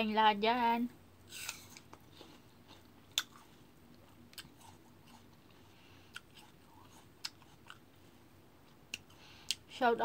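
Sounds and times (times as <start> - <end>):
chewing crisp raw fruit: 1.3 - 9.7.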